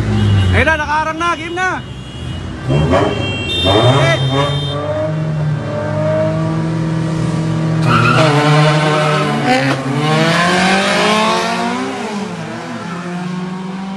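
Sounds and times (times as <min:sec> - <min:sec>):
car engines revving: 0:00.0 - 0:01.1, 0:01.8 - 0:13.9
tire squeal: 0:07.8 - 0:09.6.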